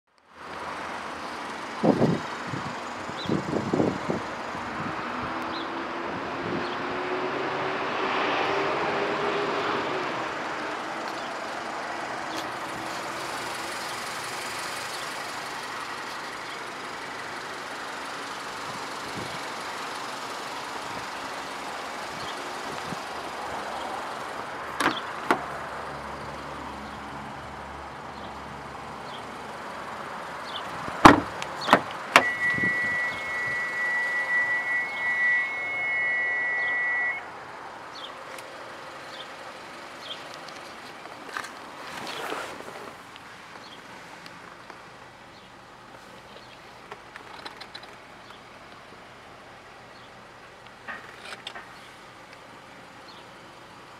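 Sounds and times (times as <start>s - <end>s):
outdoor traffic: 0.0s - 53.9s
vehicle engine: 0.1s - 53.9s
wind noise: 1.8s - 5.4s, 30.8s - 36.2s
car door handle and latch clicks: 24.8s - 25.4s, 31.0s - 32.3s.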